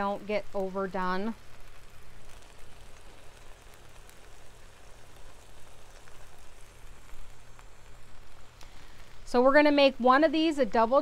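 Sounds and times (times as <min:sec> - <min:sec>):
burger patties sizzling on griddle: 0:00.0 - 0:11.0
fat popping: 0:01.4 - 0:09.3.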